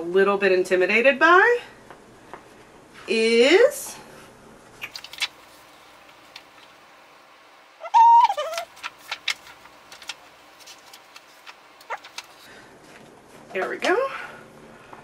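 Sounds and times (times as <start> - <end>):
high-pitched vocal sound: 7.8 - 8.6
objects being rummaged: 8.2 - 12.5.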